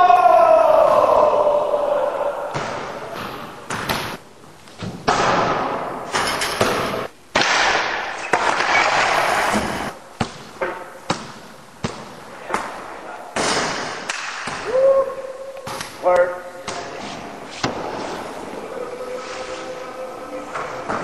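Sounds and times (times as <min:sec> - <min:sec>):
echoing bangs and clatters: 0:05.0 - 0:12.8.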